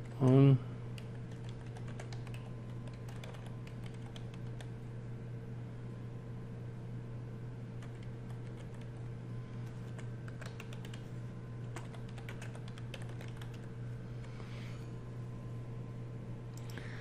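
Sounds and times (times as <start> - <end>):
low hum: 0.0 - 17.0
keyboard typing: 1.0 - 4.7, 7.8 - 9.0, 9.6 - 13.7.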